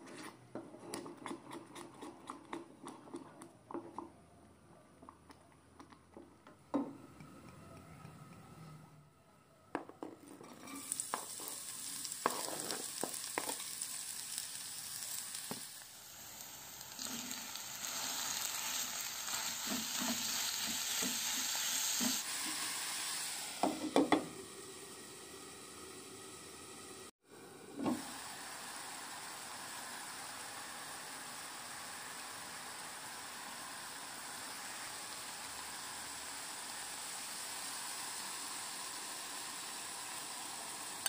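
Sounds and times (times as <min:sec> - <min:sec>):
utensil tapping and scraping pan: 0:00.0 - 0:04.1
meat sizzling in a frying pan: 0:10.6 - 0:26.7, 0:28.0 - 0:41.0.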